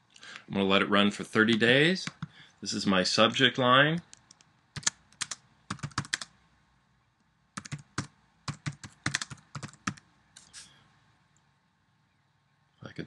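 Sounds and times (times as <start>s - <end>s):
computer keyboard typing: 4.2s - 6.3s, 7.6s - 10.0s.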